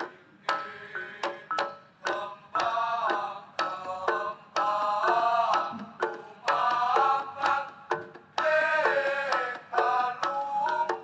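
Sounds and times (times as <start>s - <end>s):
hand drum strikes: 5.5s - 6.7s.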